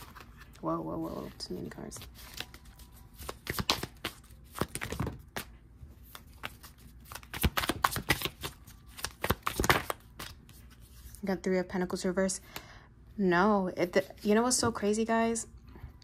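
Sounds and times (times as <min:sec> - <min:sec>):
cards being shuffled: 0:00.0 - 0:11.2.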